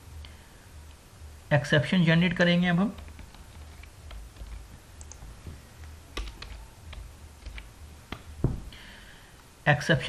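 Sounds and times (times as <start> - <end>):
computer keyboard keystrokes: 2.9 - 8.3.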